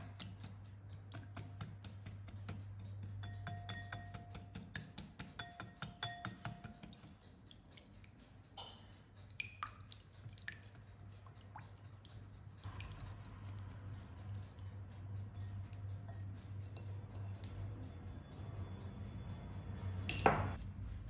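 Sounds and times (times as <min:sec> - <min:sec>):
whisk tapping: 0:00.0 - 0:07.2
whisk clinking against glass bowl: 0:03.0 - 0:07.1.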